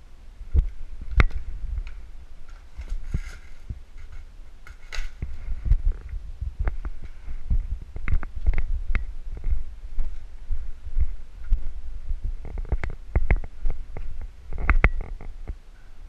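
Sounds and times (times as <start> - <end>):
gear rustling: 0.7 - 15.3
sharp clicks and knocks: 12.4 - 15.6.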